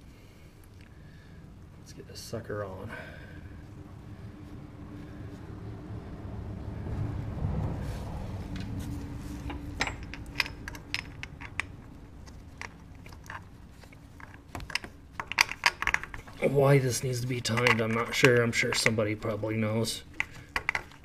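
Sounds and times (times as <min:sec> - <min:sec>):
low rustling of gloves: 0:06.8 - 0:09.8.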